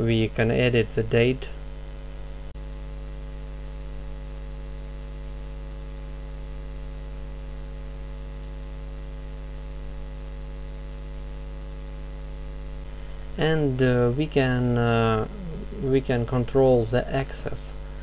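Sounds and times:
electrical mains hum: 0.0s - 18.0s
faint hiss: 12.8s - 18.0s.

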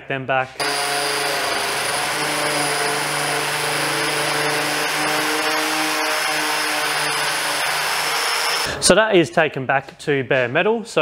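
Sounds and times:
angle grinder grinding metal: 0.6s - 8.7s.

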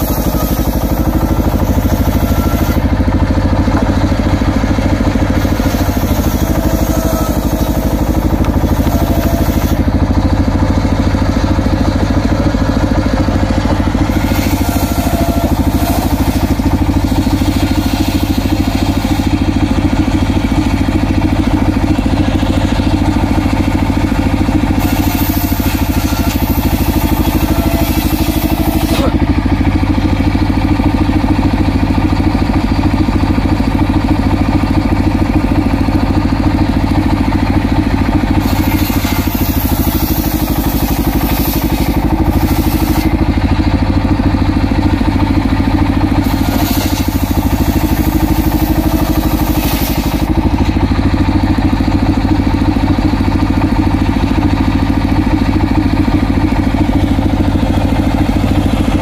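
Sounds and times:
saw blade ripping through log: 0.0s - 9.9s, 12.7s - 20.0s, 24.3s - 29.3s, 38.3s - 43.2s, 46.2s - 50.8s
circular saw bench running: 0.0s - 59.0s
engine firing pulse: 0.0s - 59.0s.

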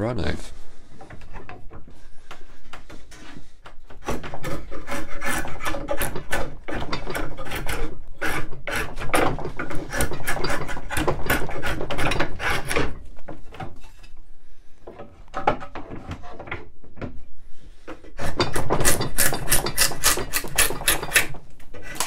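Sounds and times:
drawknife shaving wood: 3.1s - 14.0s, 18.2s - 22.0s.

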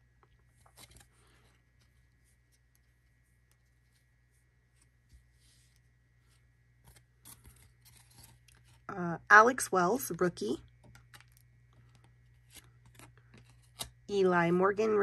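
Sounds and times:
faint low hum: 0.0s - 15.0s
trading cards clicking and rustling: 10.7s - 14.0s.

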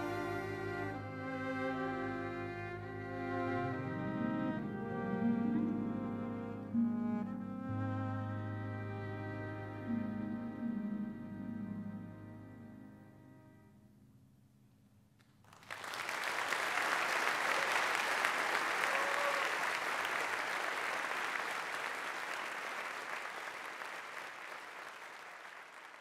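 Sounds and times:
audience applauding: 15.4s - 26.0s.

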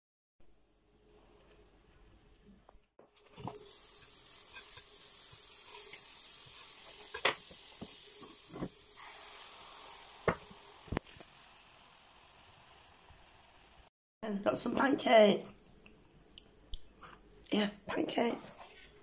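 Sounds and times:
butter sizzling in a frying pan: 3.3s - 13.9s.

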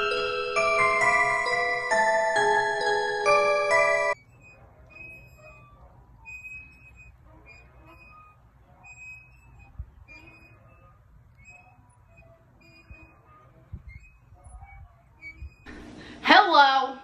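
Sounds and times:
glockenspiel-like chiming music: 0.0s - 4.2s.

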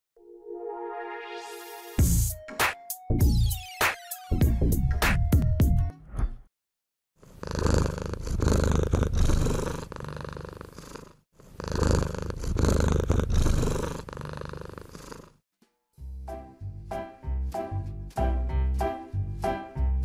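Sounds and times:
cat purring: 7.2s - 15.4s.

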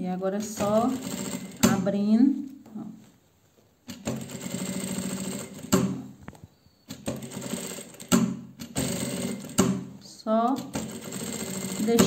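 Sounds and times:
sewing machine stitching: 0.4s - 1.9s, 3.9s - 6.1s, 6.9s - 9.9s, 10.5s - 12.0s.

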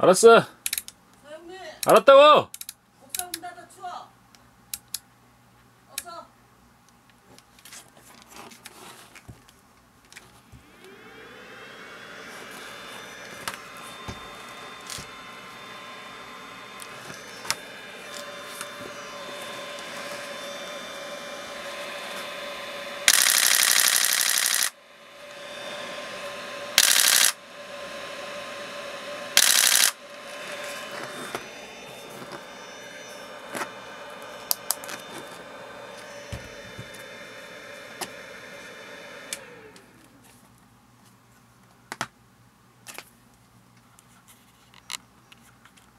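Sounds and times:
motor hum with whine: 10.2s - 40.6s
scattered clicks: 23.1s - 24.7s, 26.8s - 27.4s, 29.4s - 30.0s
camera shutter bursts: 23.1s - 24.8s, 26.8s - 27.4s, 29.4s - 30.0s.

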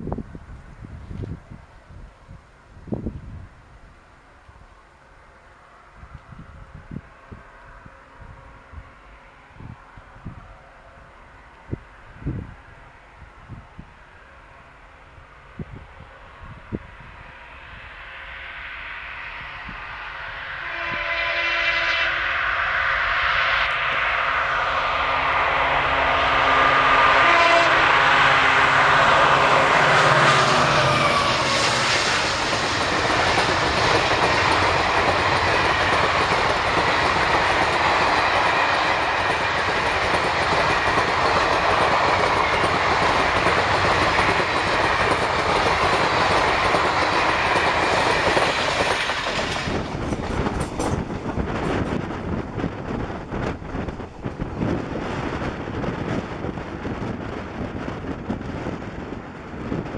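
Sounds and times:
diesel locomotive passing: 0.0s - 59.9s
locomotive horn chord: 19.3s - 32.2s
train wheels clickety-clack: 28.5s - 59.9s.

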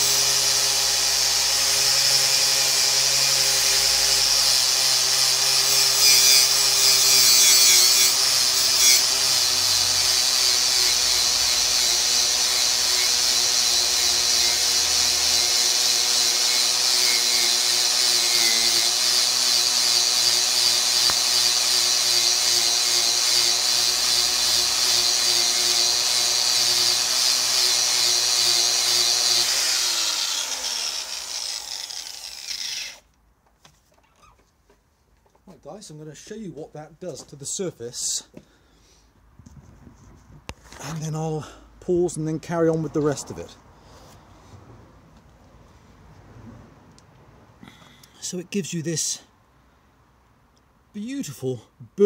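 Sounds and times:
grinder spinning down: 0.0s - 33.0s
wire wheel grinder on metal: 0.0s - 33.0s.

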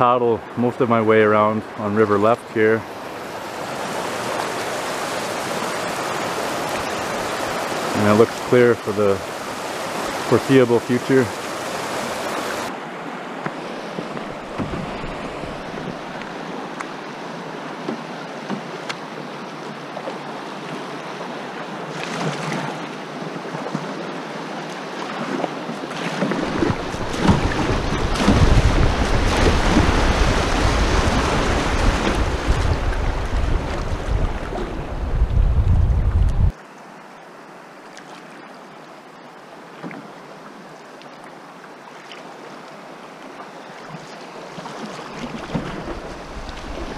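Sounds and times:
river water rushing over gravel: 0.6s - 35.1s
wind buffeting microphone: 26.3s - 36.5s.

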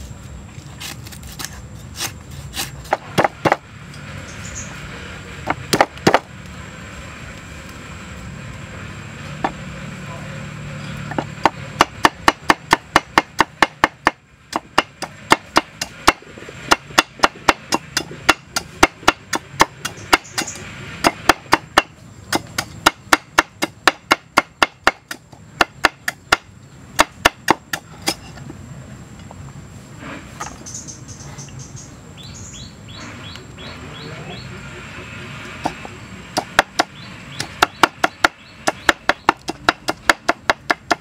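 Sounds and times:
knife chopping on wooden block: 0.8s - 3.6s.

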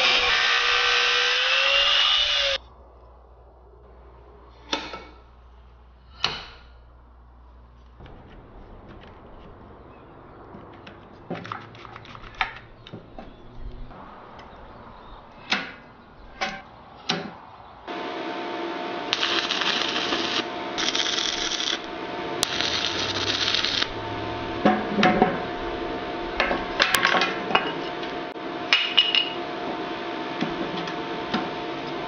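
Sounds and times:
sizzling welding arcs: 0.0s - 2.6s, 19.1s - 24.4s
steady hum: 0.0s - 32.0s.

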